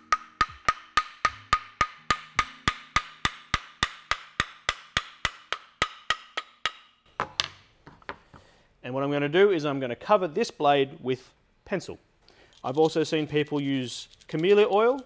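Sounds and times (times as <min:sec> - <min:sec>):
hammer tapping wooden block: 0:00.0 - 0:08.2.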